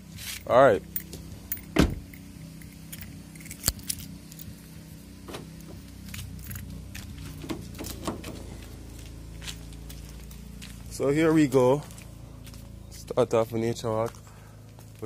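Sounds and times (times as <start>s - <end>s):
low steady hum: 0.0s - 15.0s
keys jangling and clicking: 0.9s - 4.6s, 6.1s - 8.4s.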